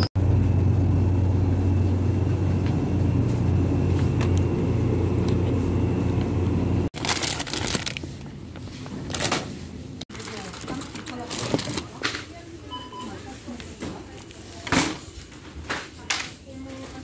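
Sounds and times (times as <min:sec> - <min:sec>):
plastic bag crinkling: 0:07.0 - 0:12.4
shopping cart rolling on tiles: 0:10.1 - 0:12.2.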